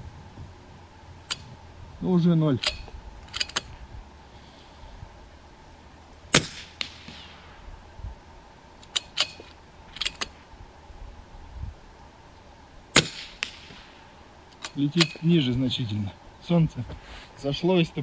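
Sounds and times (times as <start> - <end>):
rifle bolt clicking: 2.6 - 3.7
rifle shot: 6.3 - 7.6, 12.9 - 14.0.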